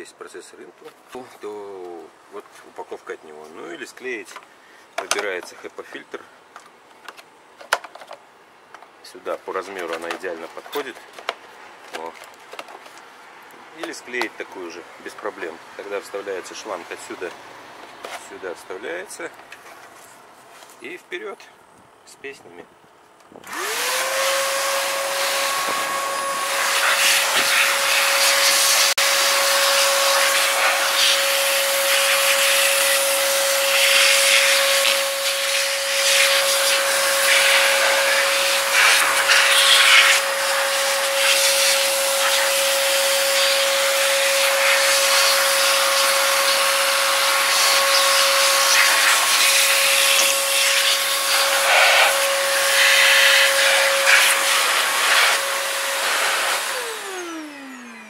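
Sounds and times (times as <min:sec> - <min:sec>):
vacuum cleaner motor whine: 0:23.4 - 0:58.0.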